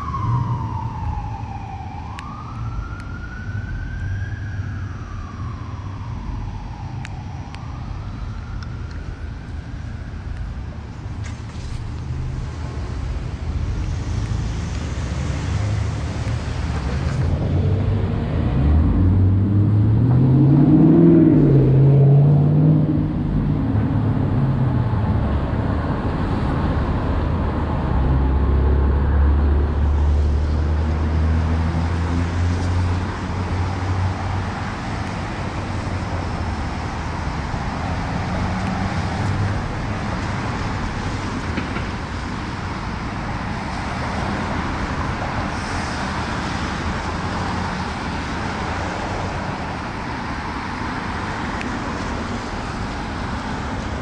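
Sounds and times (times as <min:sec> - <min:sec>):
low engine drone: 0:00.0 - 0:41.4
passing vehicle engine: 0:11.2 - 0:54.0
tyres hissing on wet road: 0:29.2 - 0:54.0.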